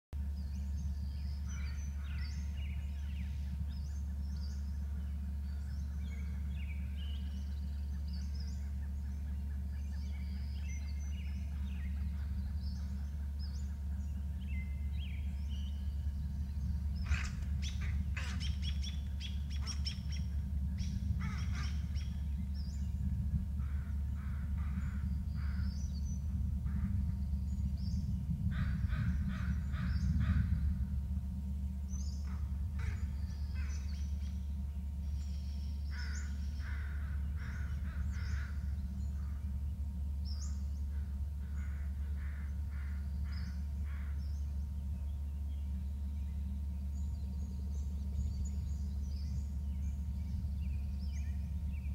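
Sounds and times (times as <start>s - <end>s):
steady low hum: 0.1s - 51.9s
small birds chirping: 0.2s - 51.9s
crows calling: 17.0s - 22.5s, 23.6s - 27.1s, 28.4s - 31.0s, 32.0s - 35.0s, 35.8s - 44.7s.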